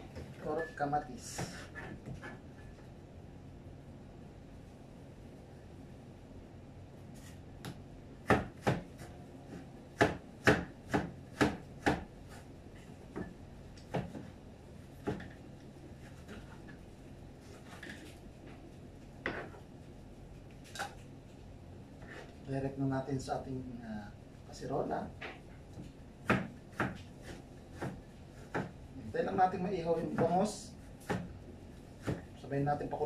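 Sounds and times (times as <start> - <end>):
cleaver chopping on cutting board: 7.6 - 9.1, 10.0 - 12.1, 26.2 - 28.8, 30.1 - 31.3, 32.0 - 32.3.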